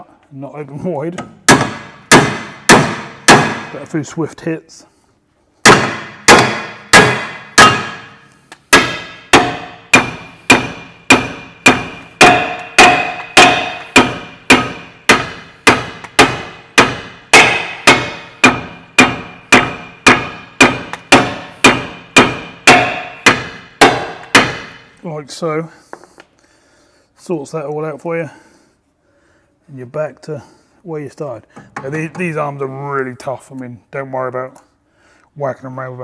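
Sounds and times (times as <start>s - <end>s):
hammer blows on metal: 5.6s - 24.9s.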